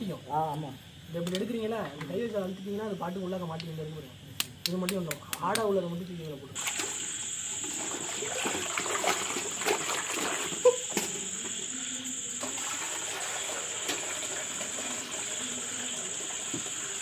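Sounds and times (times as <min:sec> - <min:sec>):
crickets chirring: 0:00.0 - 0:17.0
water sloshing in a metal pot: 0:06.6 - 0:11.7, 0:12.3 - 0:17.0.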